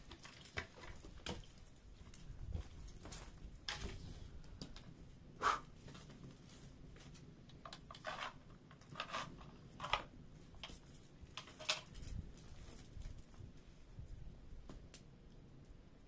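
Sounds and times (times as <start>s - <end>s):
gear scraping and knocking: 7.7s - 10.1s.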